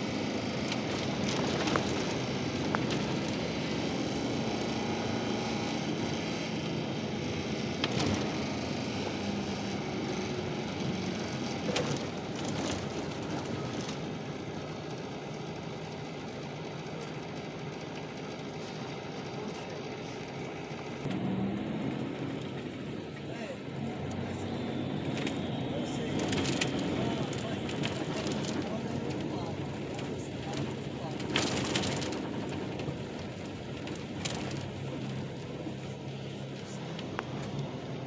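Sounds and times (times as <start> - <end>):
bus engine and road drone: 0.0 - 38.0.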